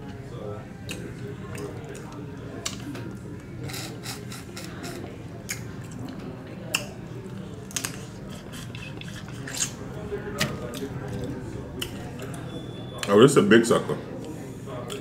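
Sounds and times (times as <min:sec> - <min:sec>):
chewing on shell: 0:03.6 - 0:09.9.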